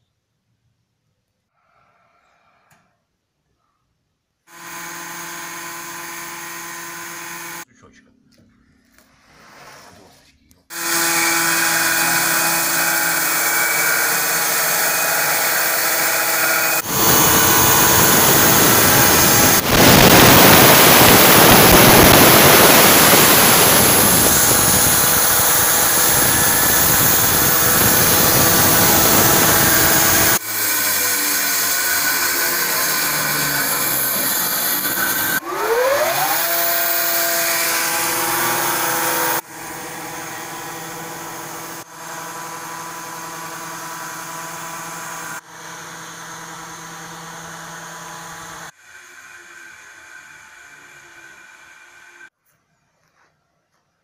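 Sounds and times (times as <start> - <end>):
saw blade cutting through log: 4.5 - 7.6, 10.7 - 49.2
sawmill motor and blade humming: 4.5 - 7.7, 10.7 - 52.3.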